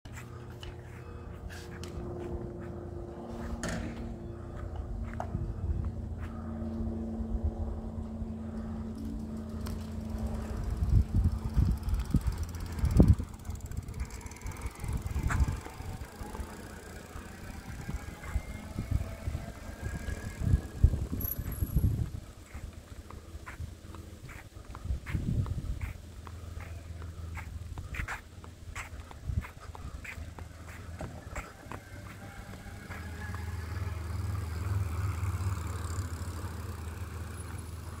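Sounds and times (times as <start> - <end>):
electric bike passing with tyre noise: 0.1 - 38.0
wind rumbling: 4.9 - 35.2.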